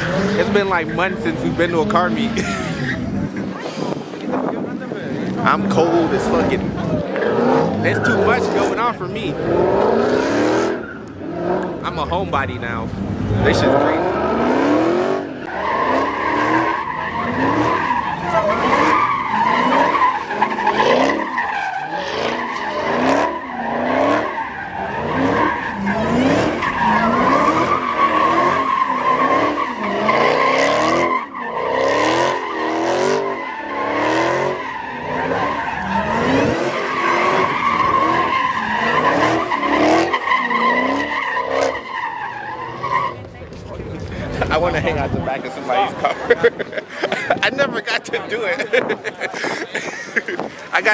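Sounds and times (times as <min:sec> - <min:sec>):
car engine revving: 0:00.0 - 0:46.7
high-pitched tyre squeal: 0:05.6 - 0:11.7, 0:13.0 - 0:43.4.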